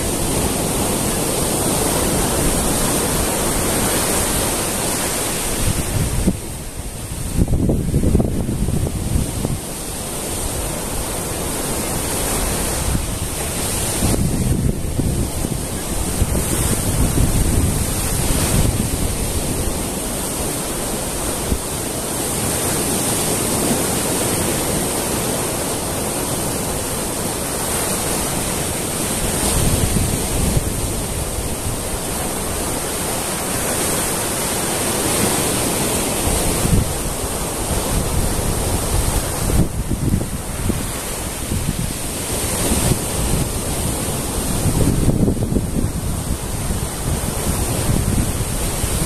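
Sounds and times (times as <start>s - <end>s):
surf washing up beach: 0.0s - 49.0s.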